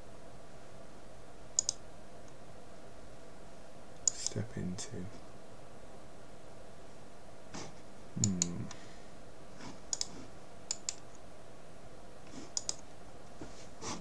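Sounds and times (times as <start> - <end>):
low voice hum: 7.6 - 9.0.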